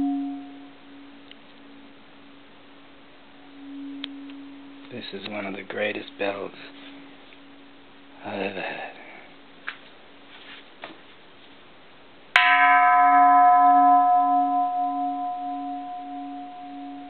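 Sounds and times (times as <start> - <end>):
temple bell ringing: 0.0 - 2.0, 3.3 - 9.3, 12.4 - 17.0.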